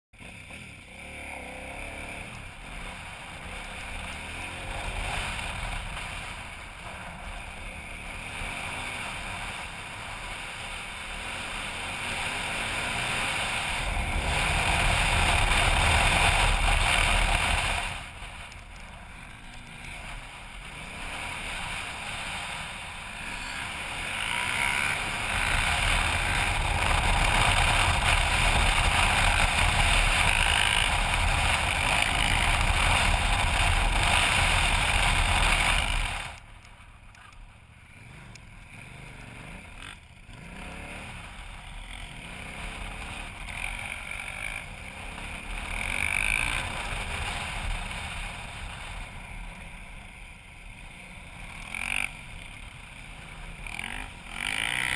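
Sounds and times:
motorcycle engine running: 0:00.2 - 0:54.9.

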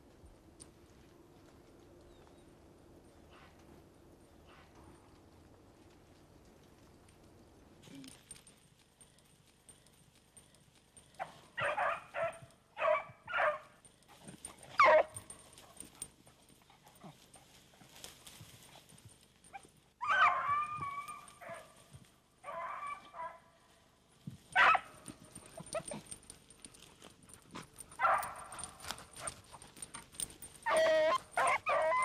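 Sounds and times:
hounds yelping and baying: 0:08.1 - 0:23.5, 0:24.5 - 0:32.0.

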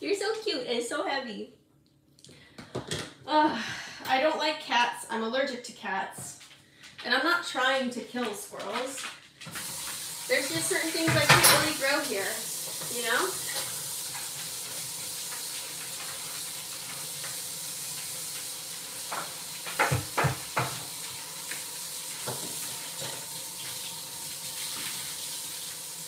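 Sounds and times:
kitchen tap running into sink: 0:07.6 - 0:26.0.

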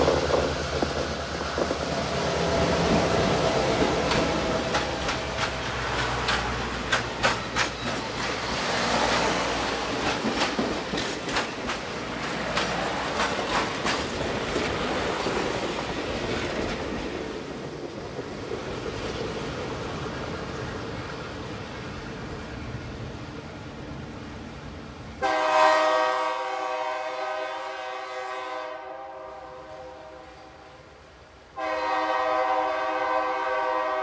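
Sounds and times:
train wheels clacking: 0:00.0 - 0:21.2
train rumble: 0:00.0 - 0:34.0.

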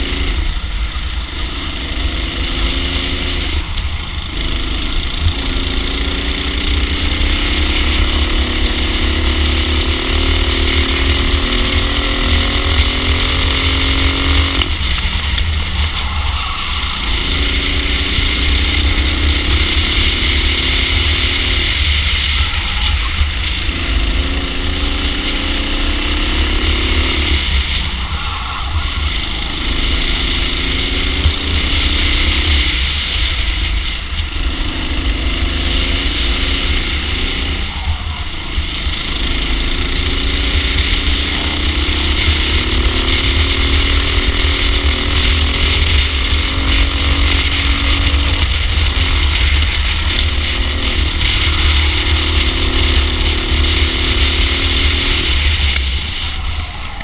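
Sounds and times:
heavy low rumble: 0:00.0 - 0:57.0
racing kart engine revving: 0:00.0 - 0:57.0.

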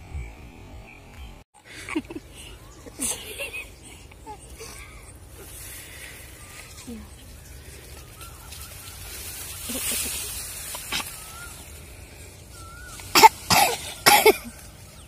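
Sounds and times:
faint bird chirps: 0:02.3 - 0:15.0
person coughing: 0:13.2 - 0:14.5.

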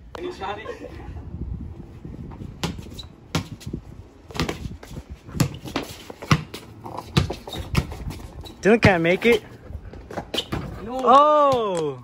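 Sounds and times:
basketball bouncing on bricks: 0:02.6 - 0:03.7, 0:04.3 - 0:09.1.

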